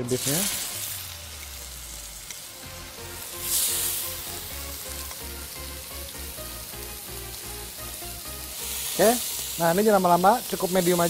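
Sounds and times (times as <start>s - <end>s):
faint background music with a beat: 0.0s - 11.0s
meat sizzling in a frying pan: 0.0s - 11.0s.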